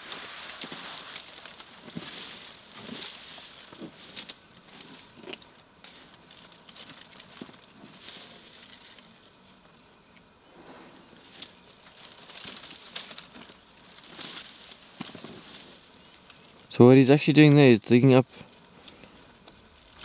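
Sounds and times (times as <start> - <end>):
branches snapping and rustling: 0.0 - 10.3, 11.2 - 16.7, 18.5 - 20.0
soft steady hiss: 0.0 - 20.0.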